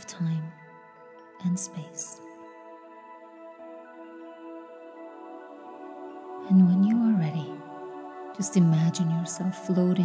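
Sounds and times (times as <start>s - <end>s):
soft ambient music: 0.0s - 10.0s.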